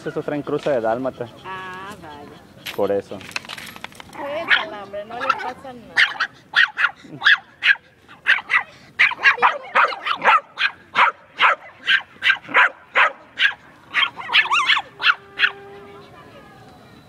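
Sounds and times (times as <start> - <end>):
small dog yapping: 4.2 - 15.6
dog wavering drawn-out call: 4.4 - 16.6.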